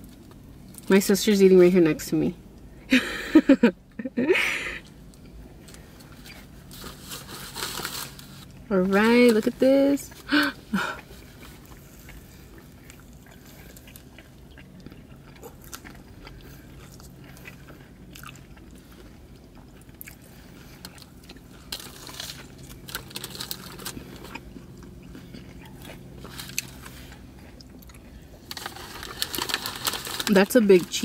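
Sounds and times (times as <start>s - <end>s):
steady low hum: 0.0s - 31.0s
person chewing crunchy food: 10.1s - 30.4s.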